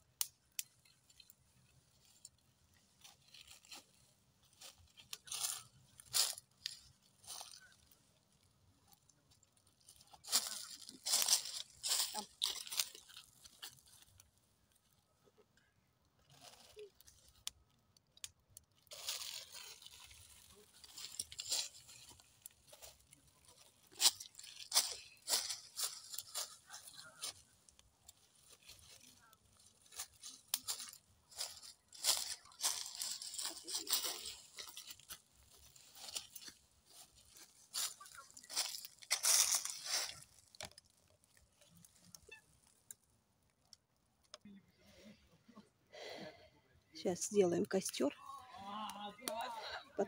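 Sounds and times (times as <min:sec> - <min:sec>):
twigs cracking: 0:00.1 - 0:44.4
footsteps crunching dry leaves: 0:01.1 - 0:08.4, 0:09.0 - 0:14.4, 0:18.8 - 0:42.8.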